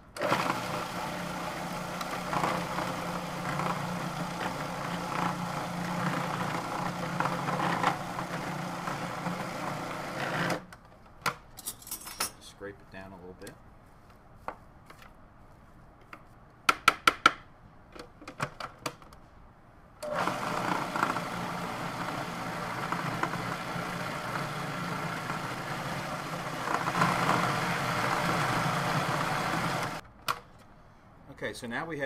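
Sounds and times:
food processor motor running: 0.2 - 10.6, 20.0 - 30.0.

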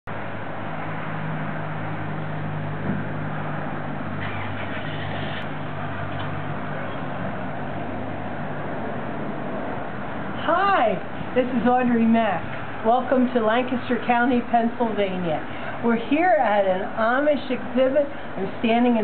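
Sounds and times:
low motor hum: 0.1 - 10.4
background noise: 1.8 - 19.0.

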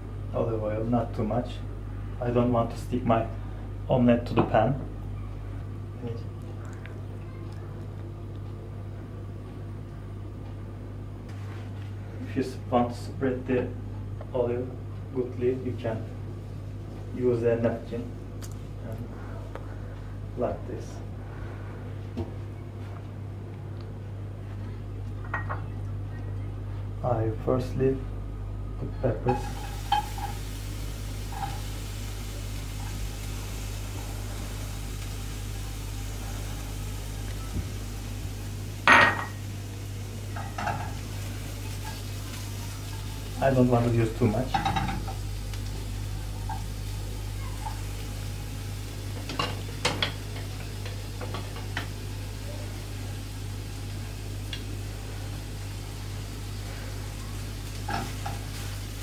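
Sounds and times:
kitchen utensils clattering: 29.2 - 30.4
peppers sizzling in frying pan: 29.2 - 59.0.

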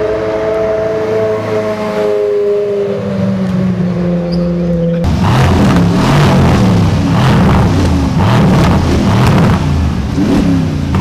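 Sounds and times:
deep pulsing engine rumble: 0.0 - 11.0
car engine at low revs: 3.4 - 11.0.

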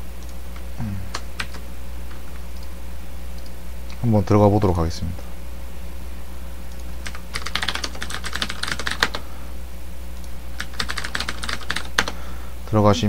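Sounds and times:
steady low hum: 0.0 - 13.0
keyboard typing: 1.1 - 1.6, 6.7 - 9.2, 10.6 - 12.2.

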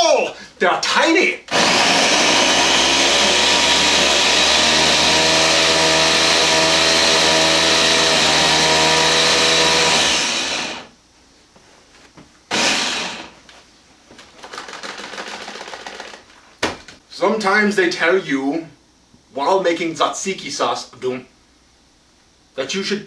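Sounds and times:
electric food chopper whining: 1.5 - 10.9, 12.5 - 13.4.

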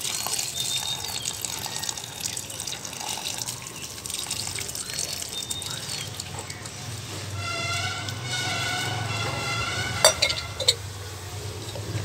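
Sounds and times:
water pouring onto plant: 0.0 - 9.0.

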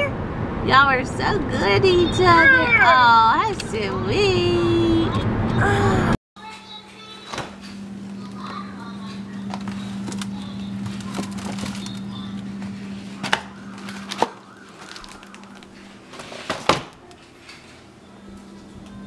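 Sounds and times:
steady low hum: 7.7 - 14.6
cardboard rustling: 9.5 - 12.4, 13.1 - 16.9.

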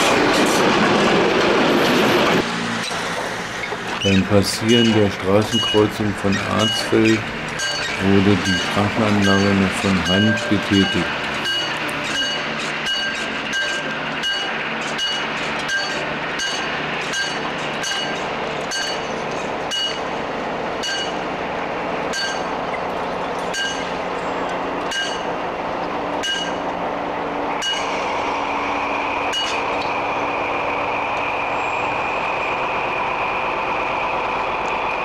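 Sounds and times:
diesel locomotive approaching: 0.0 - 35.0
level crossing bell strikes: 7.6 - 16.6.

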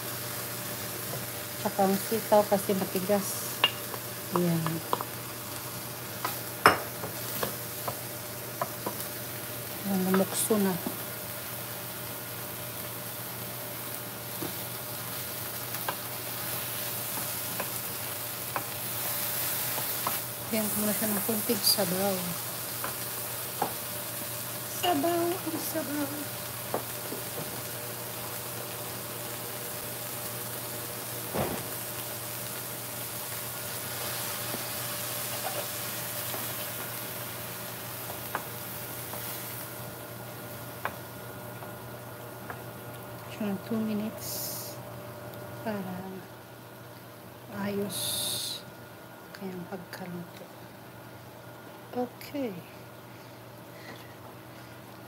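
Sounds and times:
vegetables sizzling in a frying pan: 0.0 - 55.0.

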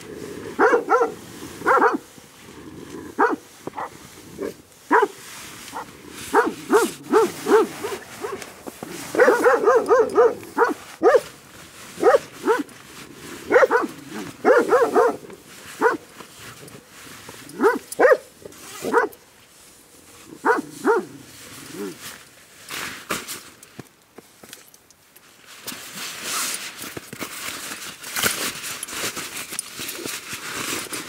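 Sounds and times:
dog barking: 0.6 - 2.0, 3.2 - 8.4, 9.1 - 11.3, 12.0 - 12.7, 13.5 - 16.0, 17.5 - 19.2, 20.4 - 21.1.

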